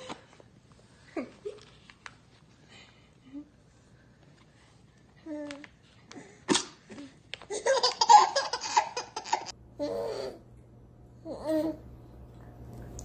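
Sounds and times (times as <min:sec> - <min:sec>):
baby laughing: 0:07.5 - 0:09.5.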